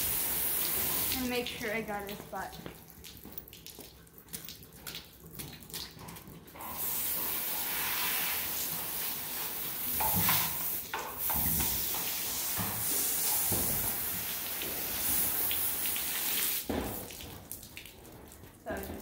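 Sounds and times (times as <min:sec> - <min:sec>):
water splashing on floor: 0:00.0 - 0:19.0
hose spray hissing: 0:06.8 - 0:16.7.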